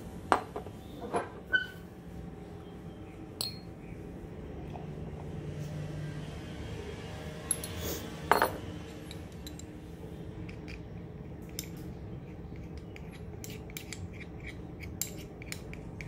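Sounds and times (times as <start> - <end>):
steady low hum: 0.0 - 16.0
ringing utensil clink: 3.4 - 3.7.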